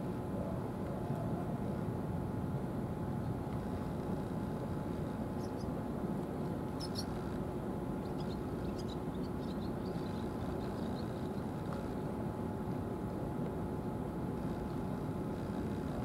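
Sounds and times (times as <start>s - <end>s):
faint even hum: 0.0s - 16.0s
small birds chirping: 5.3s - 5.8s, 6.7s - 7.4s, 8.0s - 11.5s.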